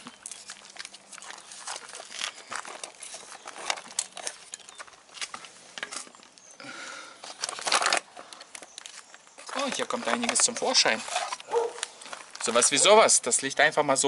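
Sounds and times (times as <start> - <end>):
plastic panels clicking and crackling: 7.2 - 12.8.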